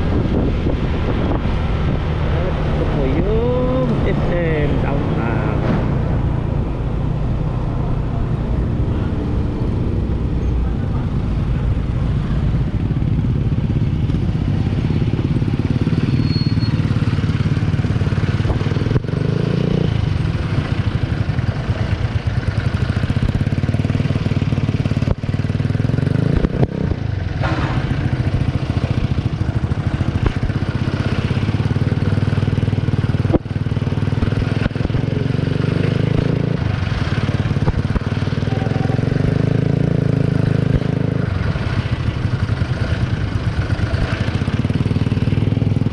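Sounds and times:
sharp knocks: 27.4 - 28.4.

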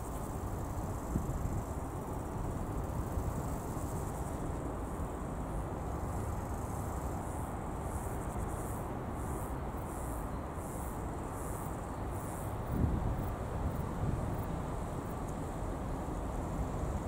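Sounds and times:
insects chirping in pulses: 5.9 - 15.2.

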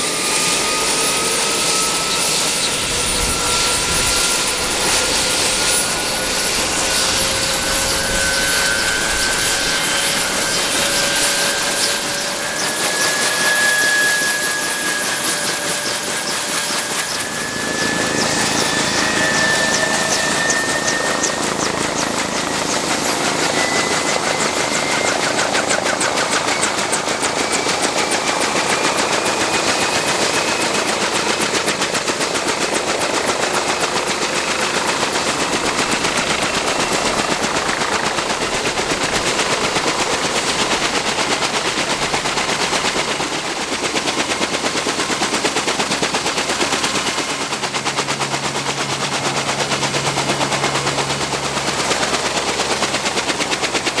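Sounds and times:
turbine whine rising in pitch: 0.0 - 29.7
helicopter rotor chop: 0.0 - 54.0.

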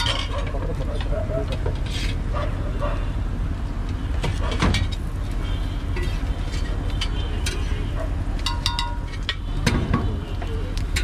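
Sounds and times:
metal utensils tapping on griddle: 8.4 - 10.0.

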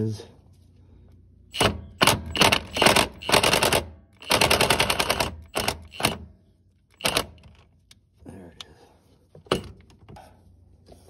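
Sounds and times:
impact wrench rattling: 1.5 - 6.2, 6.9 - 7.7.

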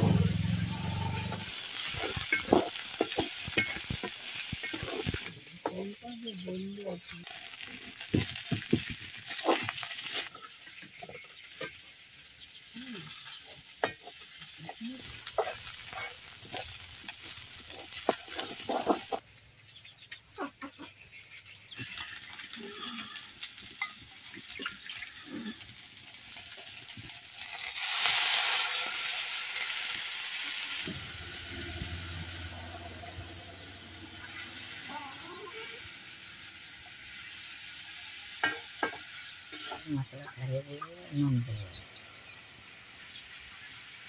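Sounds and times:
liquid hissing in hot wok: 0.0 - 5.5, 11.4 - 19.2, 25.7 - 39.9
metal spatula scraping a wok: 0.0 - 5.7, 7.0 - 11.8, 13.1 - 19.2, 36.5 - 40.4
onion sizzling in hot oil: 0.0 - 44.0.

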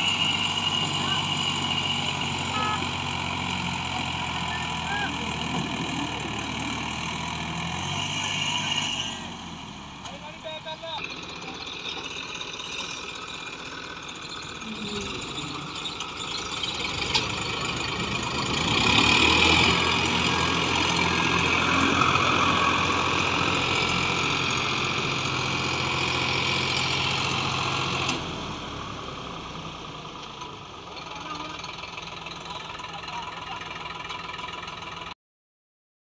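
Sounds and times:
tractor engine under load: 0.0 - 35.2.

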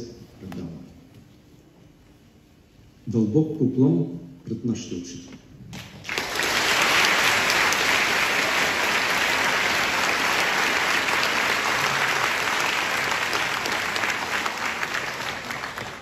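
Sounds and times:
audience applauding: 5.8 - 16.0.

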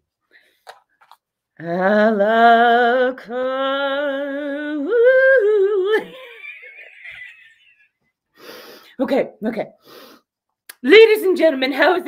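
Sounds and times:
woman singing with vibrato: 1.6 - 6.4.

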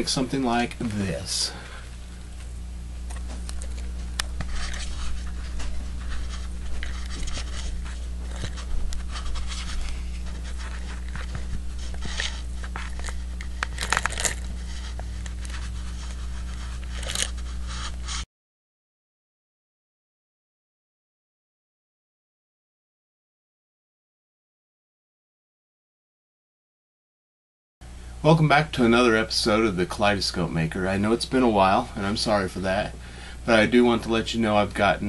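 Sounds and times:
low electrical hum: 0.0 - 18.3, 27.8 - 35.0
handling scrapes and rustles: 2.4 - 18.3.

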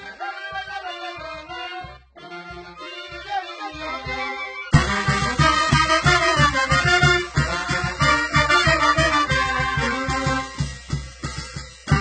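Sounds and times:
brass band playing: 0.0 - 11.0
bass drum beat: 3.8 - 12.0.

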